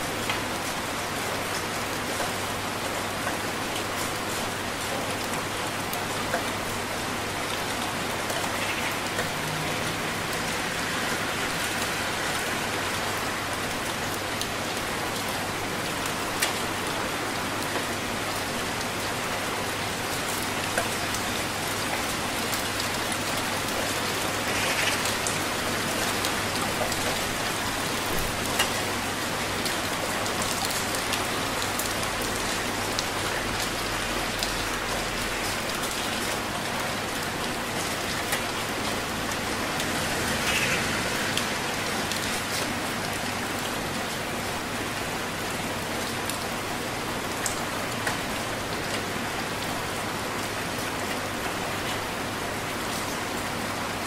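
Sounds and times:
heavy rain: 0:00.0 - 0:54.0.

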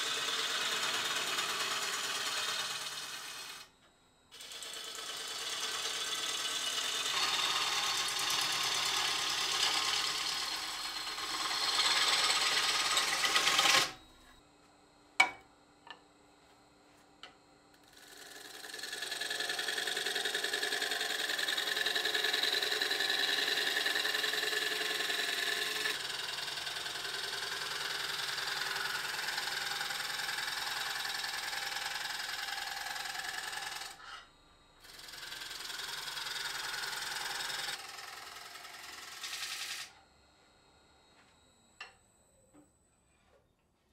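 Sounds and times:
gouge cutting wood on lathe: 0:00.0 - 0:03.7, 0:04.3 - 0:14.0, 0:17.8 - 0:34.2, 0:34.8 - 0:40.0
wood lathe running: 0:00.0 - 0:03.7, 0:04.3 - 0:14.0, 0:17.8 - 0:34.2, 0:34.8 - 0:40.0.

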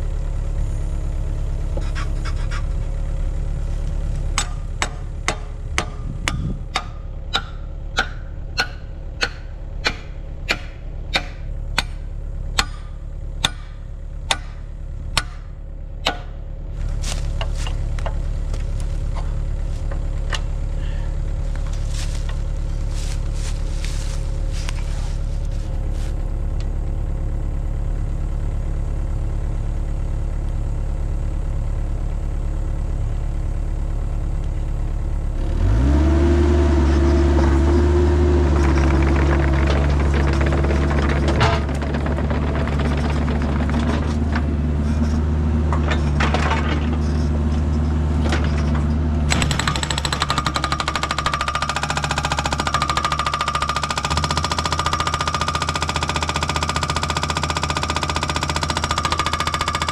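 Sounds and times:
diesel engine running: 0:00.0 - 0:59.9
hydraulic hammer pounding rock: 0:04.3 - 0:16.4, 0:37.3 - 0:47.3, 0:48.2 - 0:59.9.

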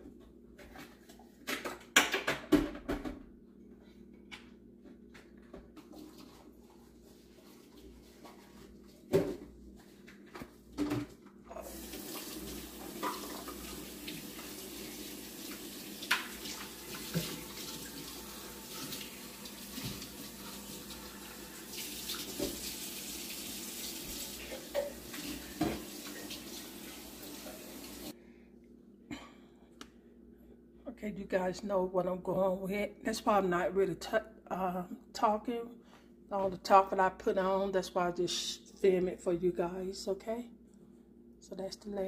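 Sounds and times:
water running from tap: 0:11.6 - 0:28.1.

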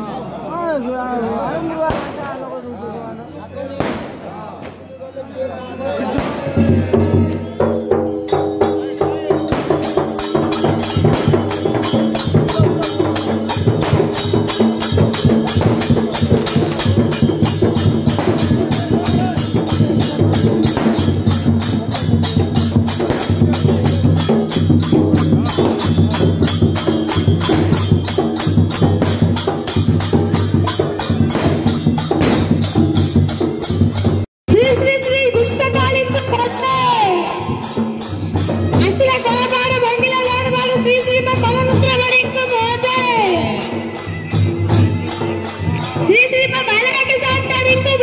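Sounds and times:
fast barrel drumming: 0:06.6 - 0:36.6.

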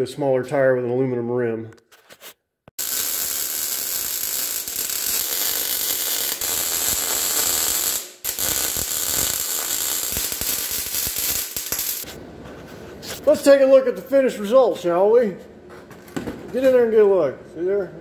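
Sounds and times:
arc welding crackle: 0:02.8 - 0:12.2.

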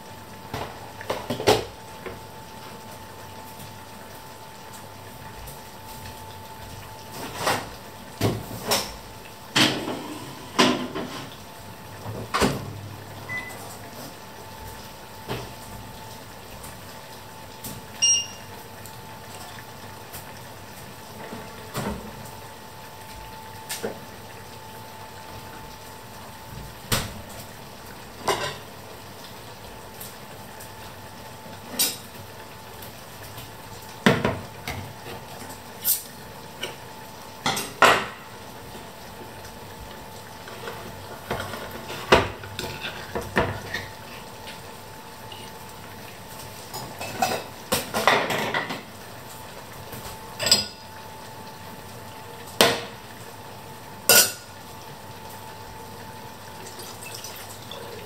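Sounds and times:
metal pots and utensils clinking: 0:54.1 - 0:54.5.

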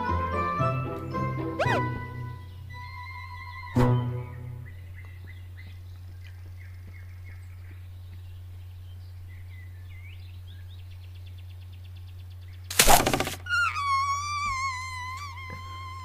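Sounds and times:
bird chirps: 0:01.6 - 0:16.0
long whistling tone: 0:13.5 - 0:16.0.

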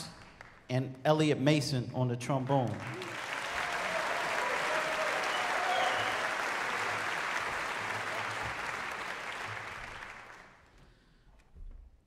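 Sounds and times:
audience applauding: 0:02.6 - 0:10.8.

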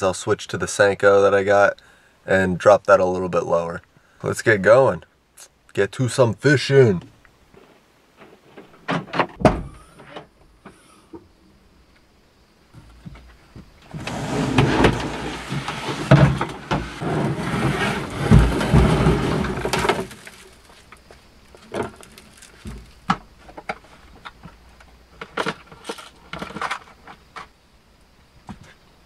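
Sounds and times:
kayak hull scraping on floor: 0:13.8 - 0:23.0
fishing gear clicks and knocks: 0:19.8 - 0:27.5.

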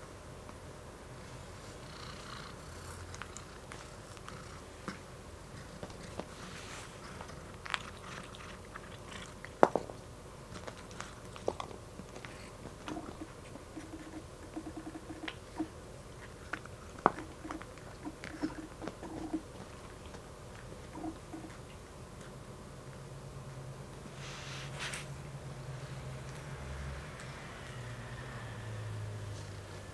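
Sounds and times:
cat crunching dry kibble: 0:05.5 - 0:22.3.

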